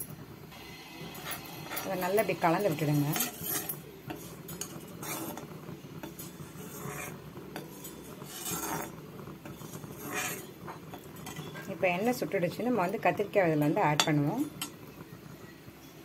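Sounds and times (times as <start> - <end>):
steel ladle scraping a pan: 1.0 - 14.8.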